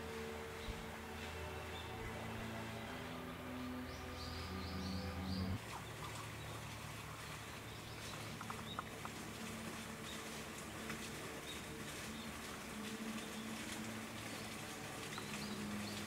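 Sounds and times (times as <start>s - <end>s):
low steady hum: 0.0s - 16.0s
small birds chirping: 3.4s - 16.0s.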